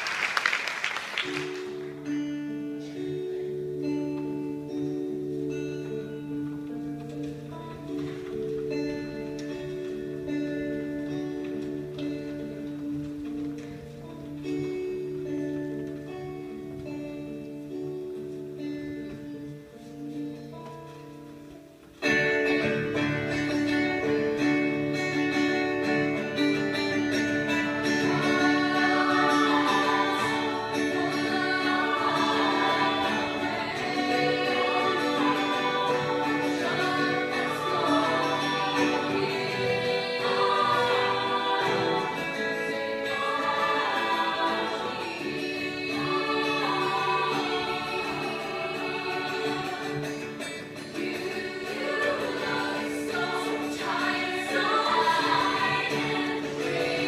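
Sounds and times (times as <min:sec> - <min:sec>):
acoustic guitars strumming: 0:01.0 - 0:57.0
female choir singing: 0:26.3 - 0:57.0.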